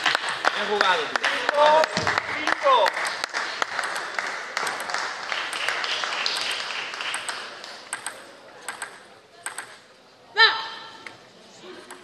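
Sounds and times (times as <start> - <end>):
applause: 0.0 - 7.8
table tennis ball bouncing: 3.0 - 9.8.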